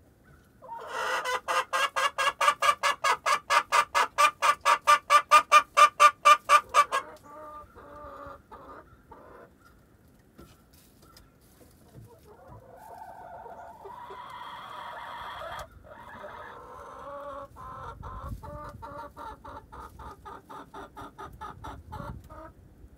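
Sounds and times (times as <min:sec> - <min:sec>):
hens clucking: 0:00.4 - 0:09.8, 0:10.4 - 0:22.6
hen drawn-out call: 0:00.6 - 0:09.5.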